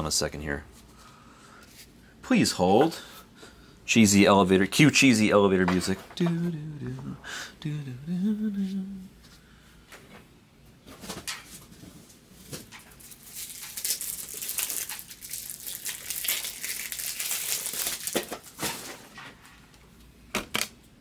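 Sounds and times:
plastic wrapping crinkling: 0:12.4 - 0:19.5.

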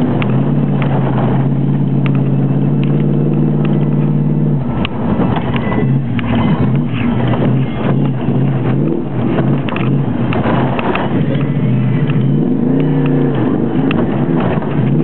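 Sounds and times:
car engine running hard: 0:00.0 - 0:15.0.

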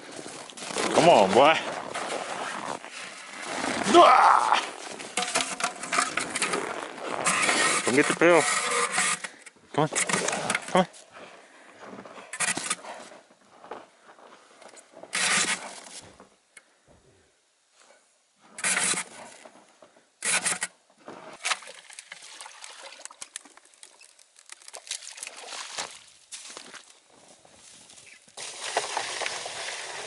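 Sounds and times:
crunching in packed snow: 0:00.0 - 0:05.2, 0:05.8 - 0:08.8, 0:23.9 - 0:30.0
light scrapes and ticks: 0:05.2 - 0:10.7.

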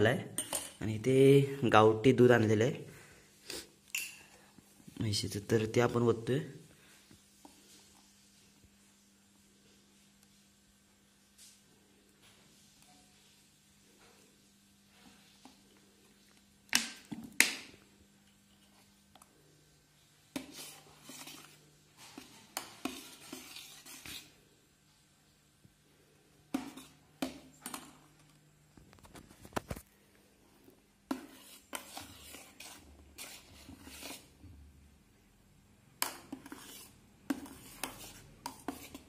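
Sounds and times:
spoon clinking and scraping bowl: 0:00.4 - 0:00.8, 0:03.9 - 0:04.4, 0:20.4 - 0:24.3, 0:36.0 - 0:39.0.

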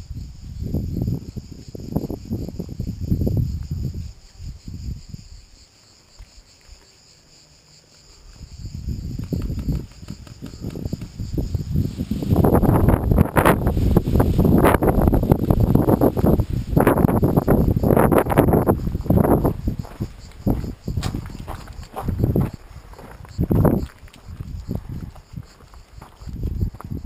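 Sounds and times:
wind gusts on microphone: 0:00.0 - 0:05.6, 0:08.1 - 0:27.0
buzzing insects chorus: 0:00.0 - 0:27.0
leaves brushing against camera: 0:09.2 - 0:18.0.

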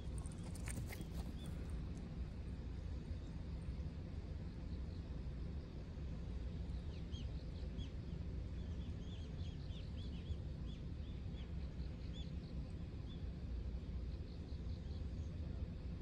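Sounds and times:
steady low rumble: 0:00.0 - 0:04.6.

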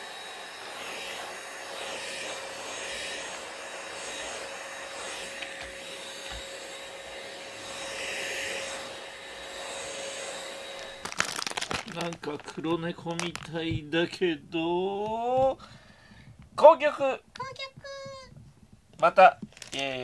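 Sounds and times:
vacuum cleaner running: 0:00.0 - 0:13.9.

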